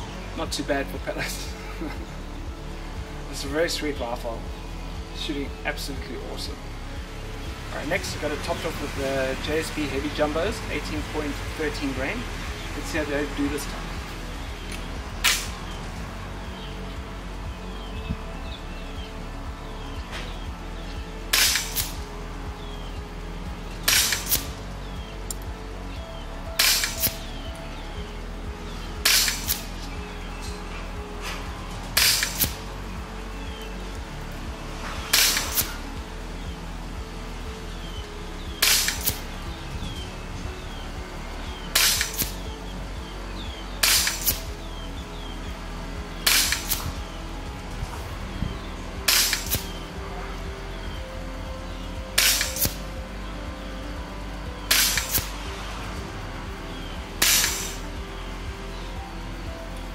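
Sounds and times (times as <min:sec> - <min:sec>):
air rifle shots: 0:21.3 - 0:22.0, 0:23.9 - 0:24.5, 0:26.6 - 0:27.2, 0:29.0 - 0:29.7, 0:32.0 - 0:32.6, 0:35.1 - 0:35.8, 0:38.6 - 0:39.2, 0:41.8 - 0:42.4, 0:43.8 - 0:44.4, 0:46.3 - 0:46.9, 0:49.1 - 0:49.6, 0:52.2 - 0:52.8, 0:54.7 - 0:55.3, 0:57.2 - 0:57.8
air rifle shot crack: 0:54.7 - 0:55.3, 0:57.2 - 0:57.8.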